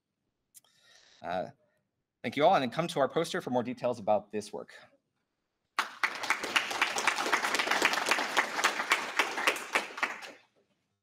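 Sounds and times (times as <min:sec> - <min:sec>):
audience applauding: 0:05.8 - 0:10.4.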